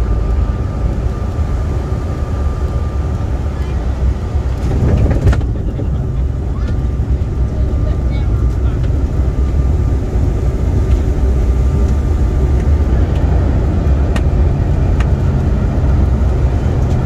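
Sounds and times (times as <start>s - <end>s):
airliner engines and wheels rumbling: 0.0s - 17.0s.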